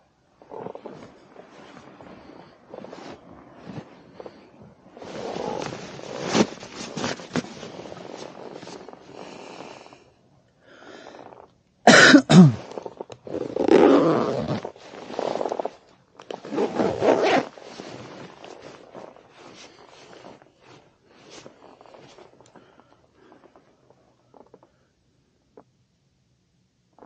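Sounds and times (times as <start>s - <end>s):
fabric rustling: 0.2s - 10.0s, 12.4s - 24.8s.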